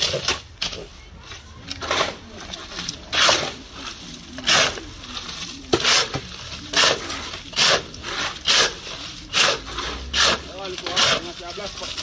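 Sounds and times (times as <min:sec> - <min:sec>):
shovels scraping wet concrete: 0:00.0 - 0:12.0.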